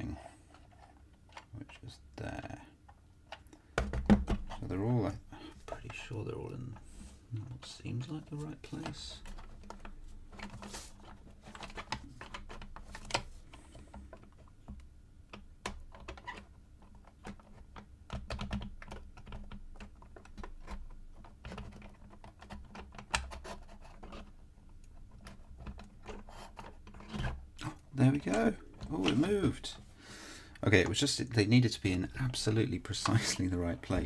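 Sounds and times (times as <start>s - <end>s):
wooden puzzle pieces clicking: 8.7s - 29.3s.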